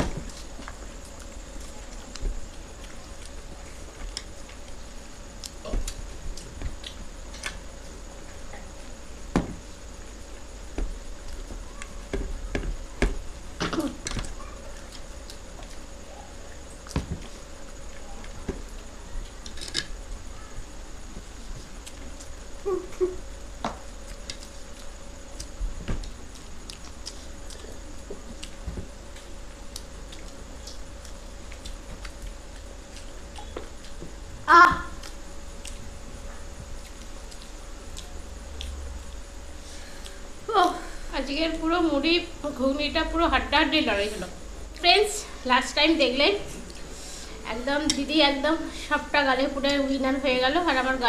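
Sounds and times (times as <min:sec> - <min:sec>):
people chewing and smacking: 0:00.0 - 0:09.0, 0:09.6 - 0:40.4, 0:46.5 - 0:47.3
faint steady hum: 0:00.0 - 0:51.0
chewing: 0:00.3 - 0:04.8, 0:24.0 - 0:34.0.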